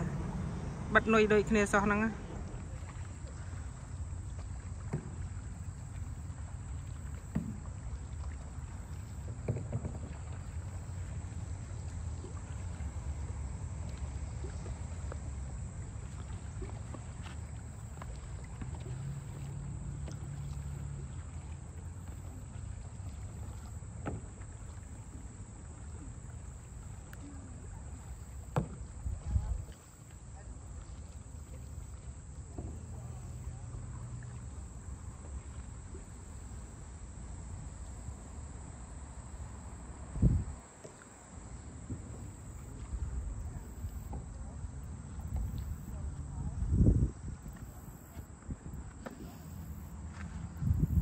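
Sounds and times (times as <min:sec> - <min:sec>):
low wind rumble: 0:00.0 - 0:03.9, 0:38.5 - 0:40.7, 0:46.2 - 0:47.6
low steady rumble: 0:00.0 - 0:51.0
water sloshing against hull: 0:00.0 - 0:51.0.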